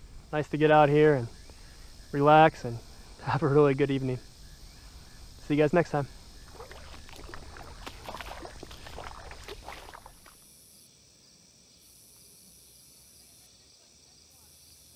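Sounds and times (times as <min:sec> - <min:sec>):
insects humming: 0:00.0 - 0:14.9
river water splashing: 0:06.3 - 0:10.4.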